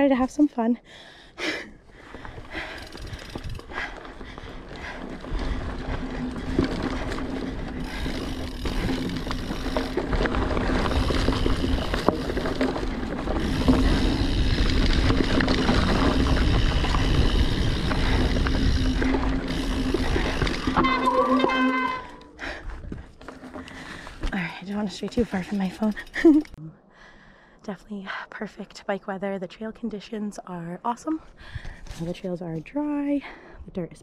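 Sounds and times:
bike tyres rumbling over dirt: 0:02.0 - 0:24.2.

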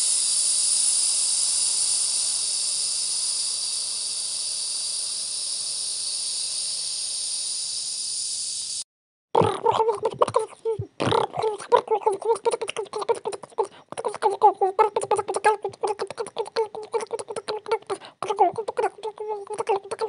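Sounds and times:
meat sizzling in frying oil: 0:00.0 - 0:08.8.

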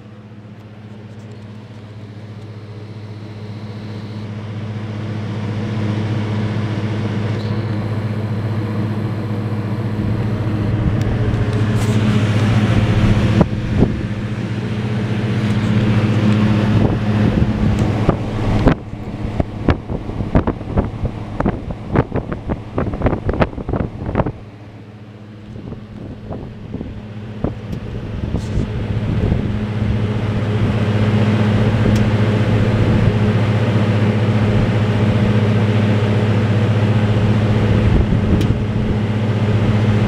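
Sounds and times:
exhaust fan humming: 0:00.0 - 0:40.0
rush of moving air: 0:08.3 - 0:24.6.

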